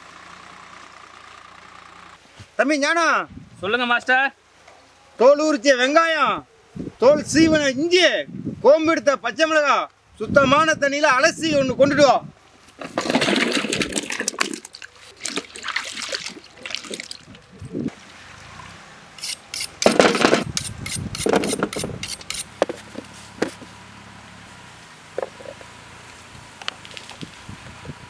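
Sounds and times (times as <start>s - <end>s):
water splashing and sloshing: 12.8s - 19.0s.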